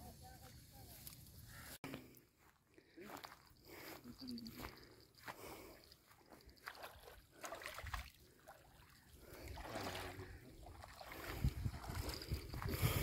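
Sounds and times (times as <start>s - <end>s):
water splashing: 6.4s - 12.9s
water running through net mesh: 6.6s - 12.4s.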